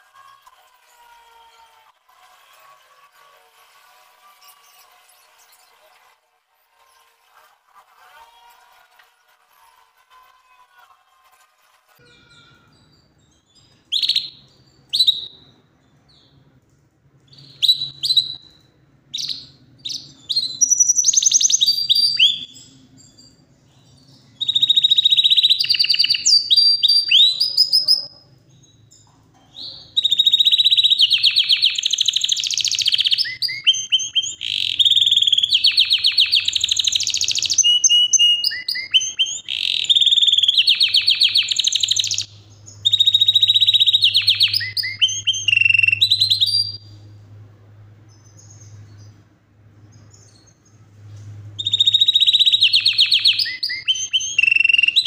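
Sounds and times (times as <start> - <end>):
canary singing trills: 12.0 - 16.5, 17.3 - 47.2, 51.6 - 55.0.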